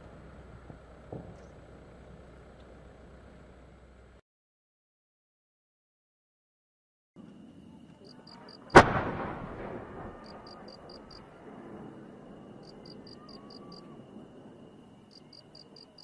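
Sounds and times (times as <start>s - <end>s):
faint background noise: 7.2s - 16.0s
firework launch bang: 8.7s - 12.0s
echo rolling away: 8.7s - 13.1s.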